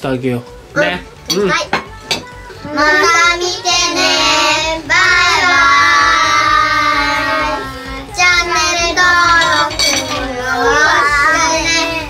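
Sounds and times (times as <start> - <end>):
children calling in sing-song chorus: 2.6 - 12.0.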